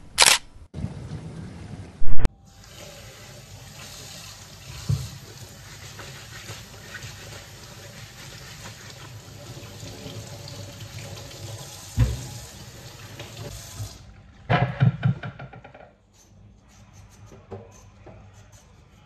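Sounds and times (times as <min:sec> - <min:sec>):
tap running into metal sink: 0:04.8 - 0:05.2, 0:11.9 - 0:13.9.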